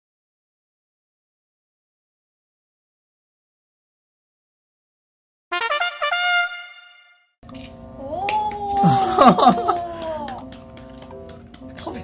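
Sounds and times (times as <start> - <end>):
brass fanfare: 5.5 - 7.3.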